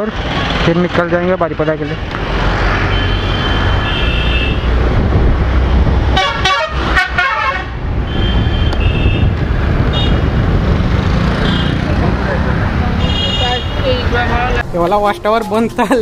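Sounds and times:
loud wavering bus horn: 2.8 - 4.8, 6.1 - 10.3, 13.0 - 14.0.

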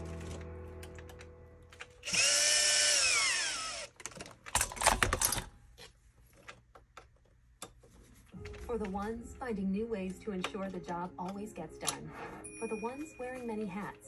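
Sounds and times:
cordless drill motor running: 2.0 - 4.0.

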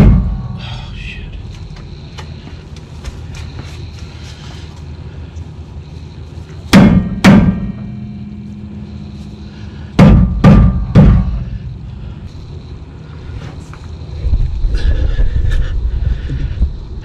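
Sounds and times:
mallet striking brake rotor: 6.7 - 8.7, 10.0 - 11.6
rotor ringing: 7.2 - 12.8.

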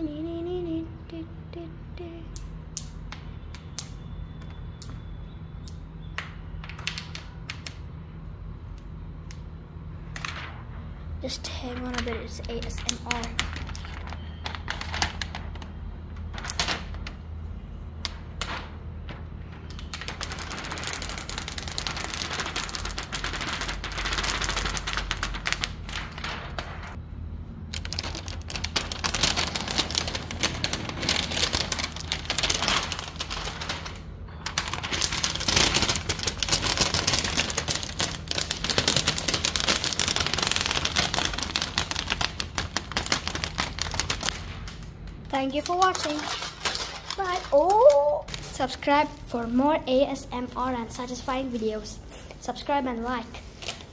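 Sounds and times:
plastic film peeling crackle: 11.8 - 17.2, 18.0 - 27.0, 27.7 - 49.2.

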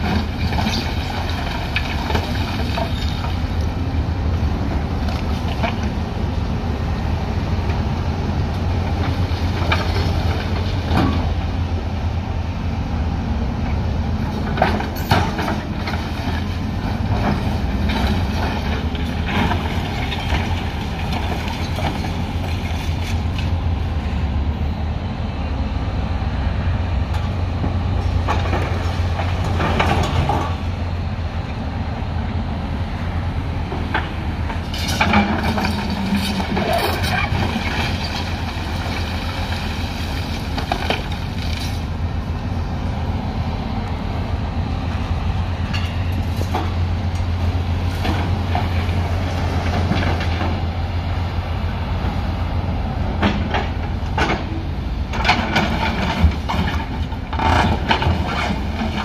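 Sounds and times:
concrete rubble clattering: 0.0 - 3.4, 34.7 - 41.9
excavator diesel engine running: 0.0 - 59.0.

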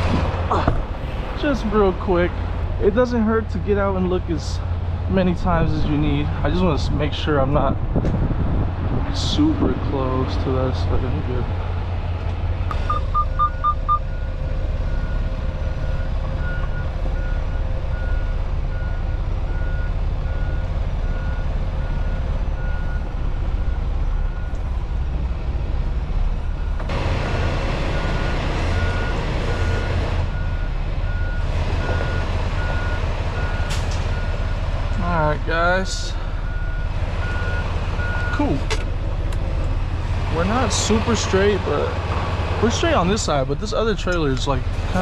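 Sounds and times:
diesel engine rumble: 0.0 - 45.0
truck backup alarm beeping: 12.7 - 24.6, 26.5 - 38.6.

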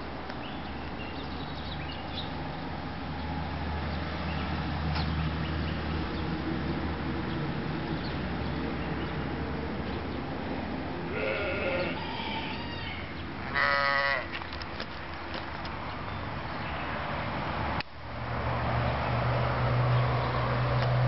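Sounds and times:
loud bleat: 11.1 - 14.4.

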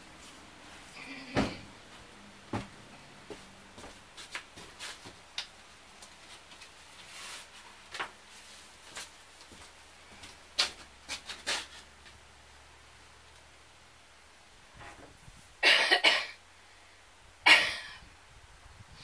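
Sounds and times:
boot footsteps on floor: 1.4 - 5.2.

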